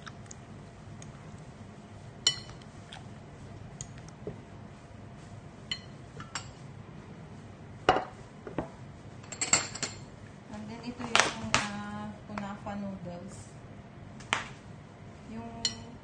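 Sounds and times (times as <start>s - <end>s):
glass bowl and plate clinking: 2.2s - 2.6s.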